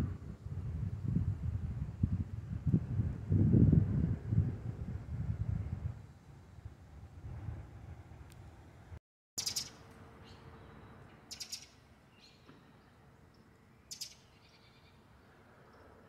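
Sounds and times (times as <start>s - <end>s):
small bird chirping: 9.4s - 15.0s.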